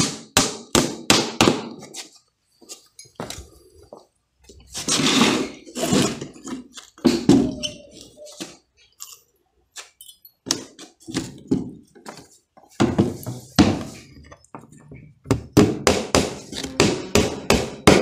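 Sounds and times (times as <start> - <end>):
hammer knocking on wooden boards: 15.2 - 18.0.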